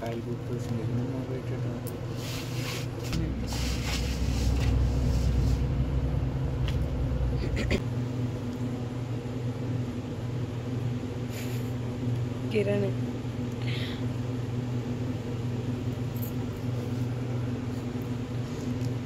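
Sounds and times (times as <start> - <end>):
steady low hum: 0.0 - 19.0
low rumble: 3.2 - 8.8.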